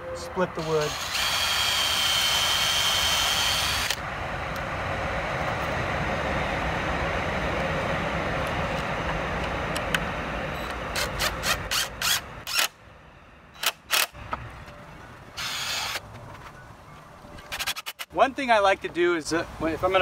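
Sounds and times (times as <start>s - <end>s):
cordless drill boring into wood: 0.6s - 4.0s, 11.0s - 12.7s, 15.4s - 16.0s.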